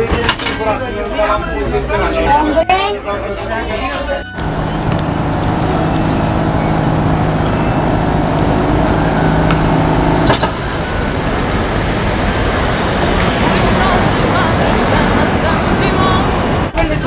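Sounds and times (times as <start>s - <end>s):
tram rolling on rails: 0.0s - 17.0s
tram motor hum: 1.9s - 17.0s
tram clunk: 4.3s - 17.0s.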